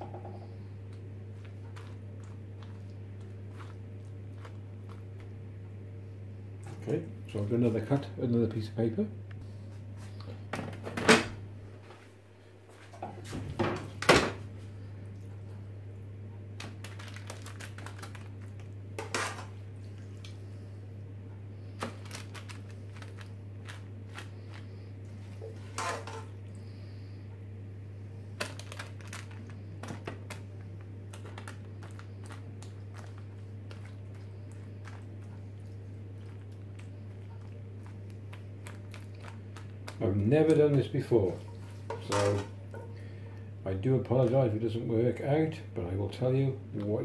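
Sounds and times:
low hum: 0.0s - 45.0s
spoon scraping plastic tray: 25.4s - 26.3s.

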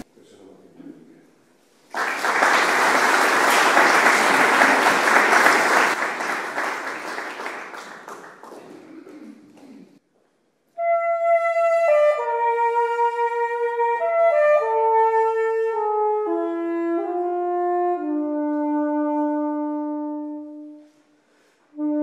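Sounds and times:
audience applauding: 1.9s - 10.0s
woodwind long held note: 10.8s - 21.0s, 21.7s - 22.0s.

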